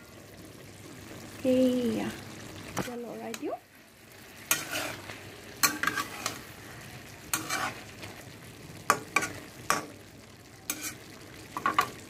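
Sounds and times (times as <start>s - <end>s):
vegetables sizzling in oil: 0.0s - 12.0s
metal spatula scraping a pan: 4.3s - 6.6s, 7.2s - 8.2s, 8.9s - 10.0s, 10.7s - 12.0s.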